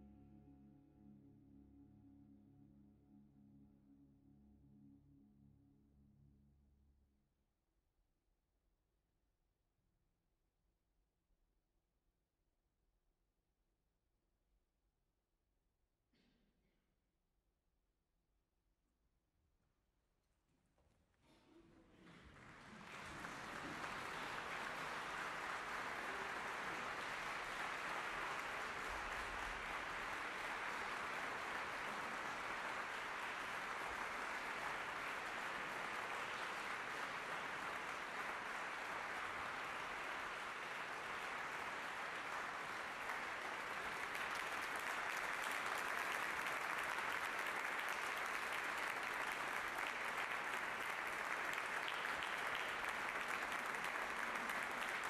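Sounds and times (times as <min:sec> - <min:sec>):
audience applauding: 0:21.9 - 0:55.0.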